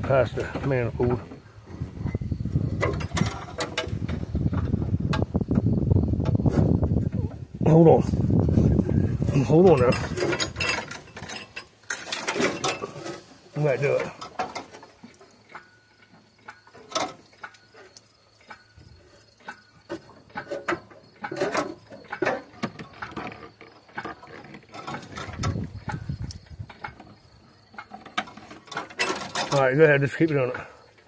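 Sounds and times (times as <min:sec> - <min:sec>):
hoist chain ratcheting and clanking: 0:02.8 - 0:05.2, 0:09.4 - 0:30.7.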